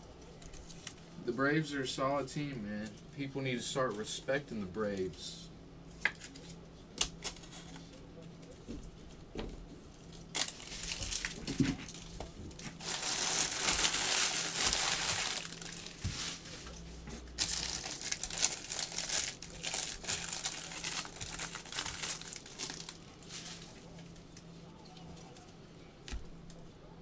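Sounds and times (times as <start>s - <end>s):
foil wrappers crinkling and tearing: 10.0s - 24.2s.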